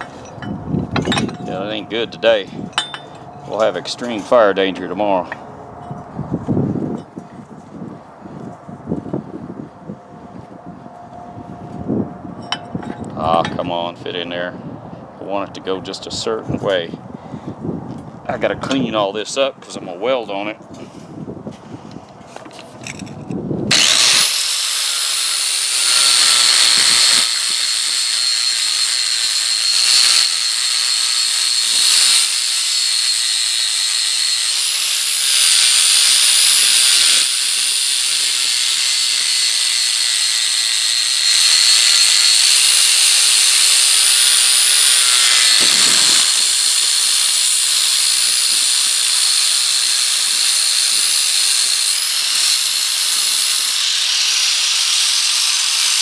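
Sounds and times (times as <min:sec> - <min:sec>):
wire wheel hissing on steel: 0:23.7 - 0:56.0.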